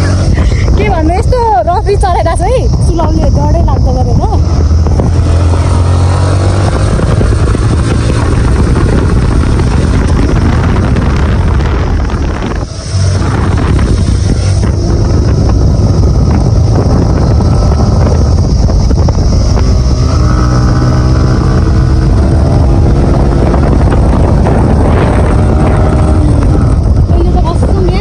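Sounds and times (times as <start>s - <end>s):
motorcycle engine running: 0.0s - 28.0s
wind buffeting microphone: 0.0s - 28.0s.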